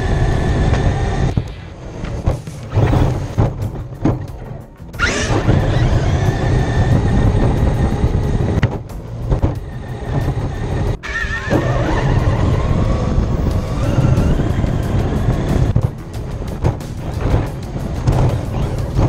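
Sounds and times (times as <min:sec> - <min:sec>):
rumble of bumps: 0:00.0 - 0:19.0
electric motor whine: 0:05.0 - 0:15.8
wind on camera: 0:05.0 - 0:19.0.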